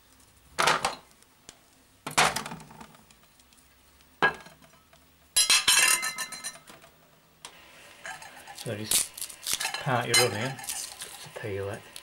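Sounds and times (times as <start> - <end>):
plate and knife clinking: 5.4 - 6.7, 9.5 - 11.1.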